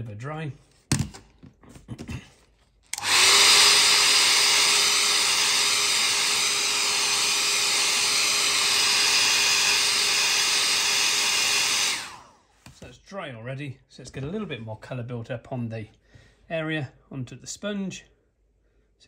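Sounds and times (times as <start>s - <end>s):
hairdryer blowing: 2.9s - 12.4s.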